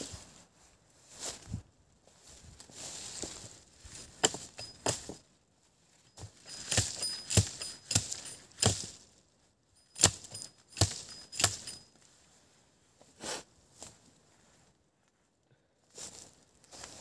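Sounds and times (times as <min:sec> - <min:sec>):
axe chopping wood: 0:04.2 - 0:05.2, 0:06.6 - 0:08.9, 0:10.0 - 0:11.7
high metallic ring: 0:04.2 - 0:05.2, 0:06.0 - 0:09.0, 0:09.8 - 0:12.1.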